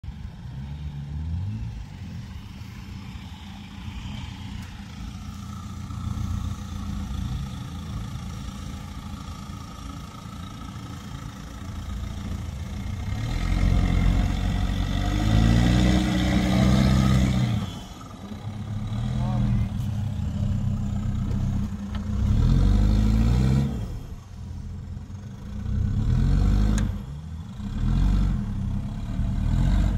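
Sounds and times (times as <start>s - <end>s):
pickup truck engine revving: 12.8s - 24.3s.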